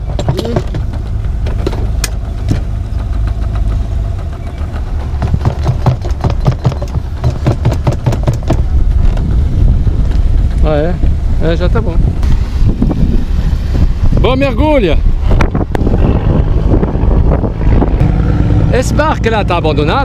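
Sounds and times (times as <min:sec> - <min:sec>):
clicks and knocks: 0:00.0 - 0:09.2
low motor hum: 0:00.0 - 0:20.0.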